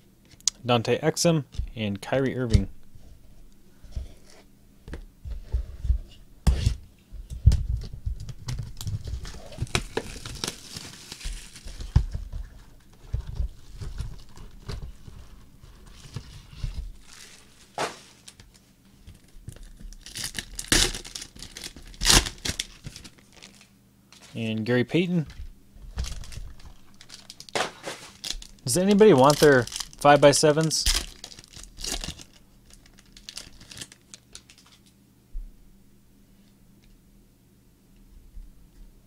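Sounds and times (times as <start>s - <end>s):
plastic wrapping crinkling: 8.2s - 24.4s, 25.9s - 34.9s
wrapping tearing: 8.8s - 12.0s, 19.2s - 24.3s, 26.0s - 34.8s.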